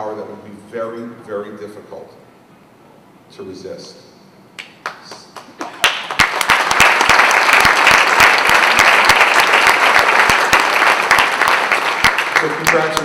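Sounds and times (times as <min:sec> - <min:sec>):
audience applauding: 0:04.8 - 0:13.0.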